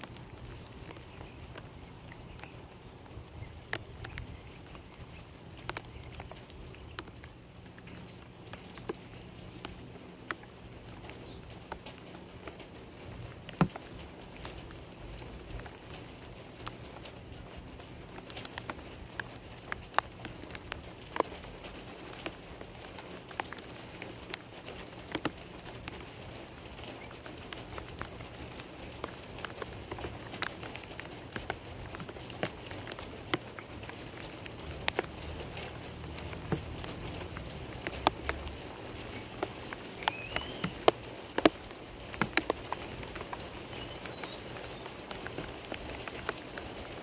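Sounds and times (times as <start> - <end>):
rain dripping and ticking: 0.0 - 47.0
small bird chirping: 3.2 - 9.7, 40.0 - 40.8.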